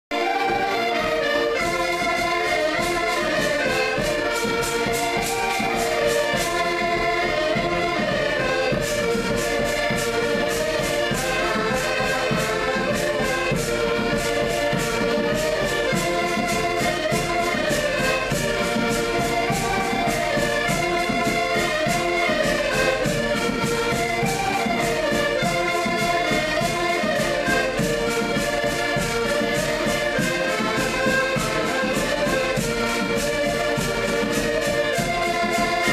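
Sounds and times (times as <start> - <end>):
button accordions playing: 0.1 - 35.9.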